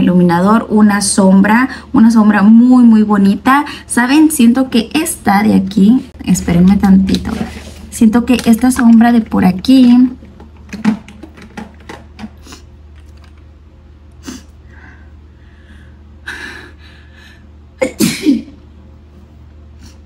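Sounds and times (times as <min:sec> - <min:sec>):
woman sneezing loudly: 0:17.8 - 0:18.6.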